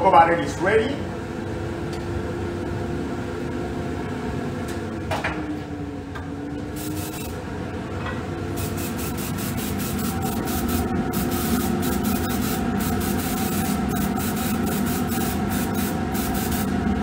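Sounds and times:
steady machine hum: 0:00.0 - 0:17.0
airbrush hissing spurts: 0:06.8 - 0:07.4, 0:08.6 - 0:16.7.

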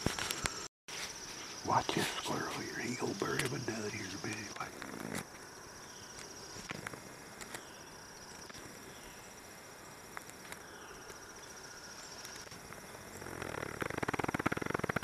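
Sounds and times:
insect trilling: 0:00.1 - 0:09.4, 0:10.4 - 0:15.0.

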